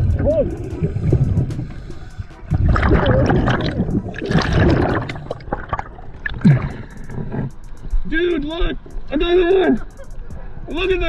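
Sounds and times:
water sloshing: 0:00.0 - 0:07.7
bubbles gurgling underwater: 0:02.5 - 0:06.9.

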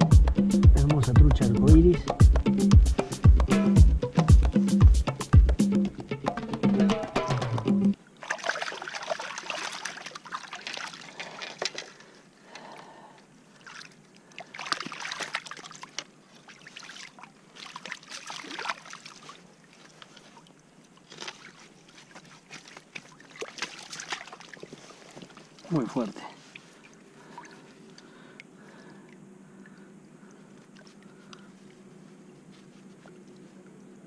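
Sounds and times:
water sloshing and splashing: 0:08.0 - 0:12.8, 0:13.4 - 0:33.8.

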